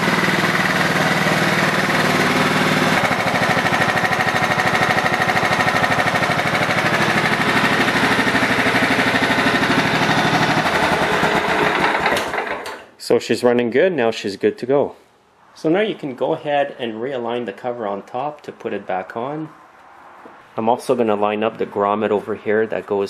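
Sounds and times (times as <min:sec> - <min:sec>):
lawn tractor engine running: 0:00.0 - 0:12.9.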